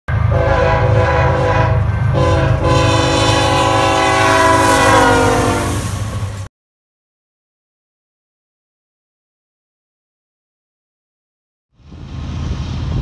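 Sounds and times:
train rumbling: 0.1s - 6.5s, 11.8s - 13.0s
locomotive air horn blasts: 0.2s - 5.9s.

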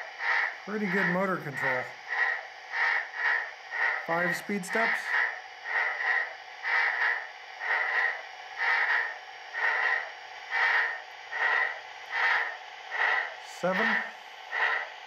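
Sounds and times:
hissy steam locomotive chuffs: 0.0s - 15.0s.

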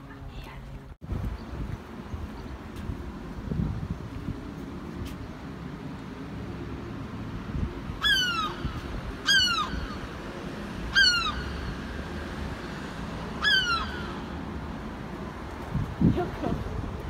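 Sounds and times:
low traffic rumble: 0.0s - 17.0s
gull calling: 8.0s - 10.1s, 10.9s - 11.7s, 13.4s - 14.3s.

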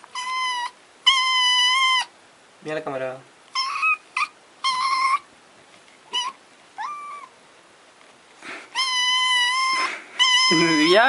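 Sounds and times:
kitten mewing: 6.1s - 7.4s, 8.4s - 11.0s.

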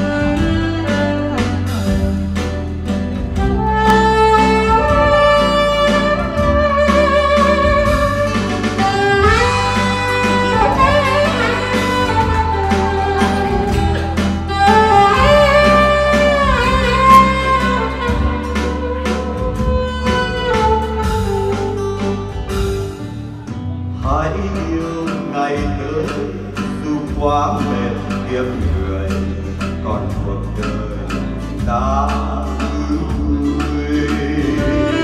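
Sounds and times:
saxophone solo: 0.0s - 23.0s, 34.6s - 35.0s
acoustic guitar accompaniment: 0.0s - 35.0s.

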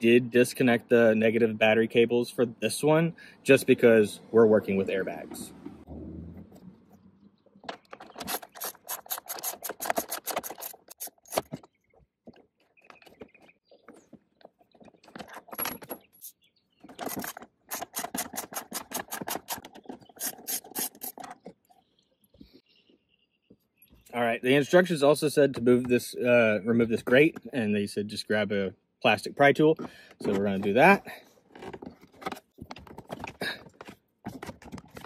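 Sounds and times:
hand ratchet clicking: 8.2s - 11.5s, 17.0s - 19.6s, 20.2s - 21.2s.

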